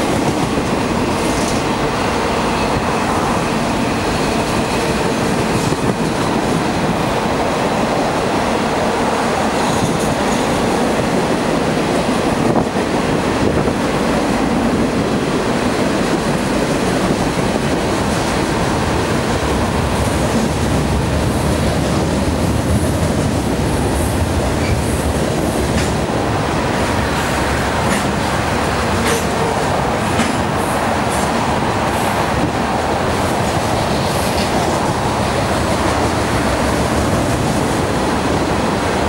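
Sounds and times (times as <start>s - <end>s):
freight train rolling on rails: 0.0s - 39.0s.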